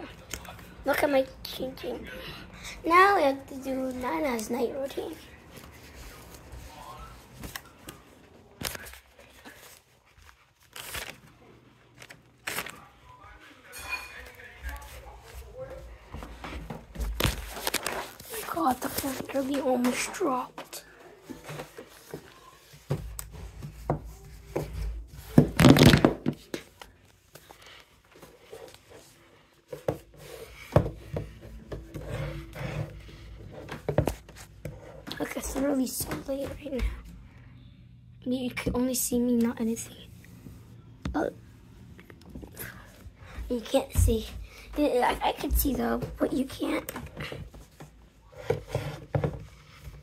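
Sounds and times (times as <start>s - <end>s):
fabric and plastic rustling: 2.9s - 37.2s.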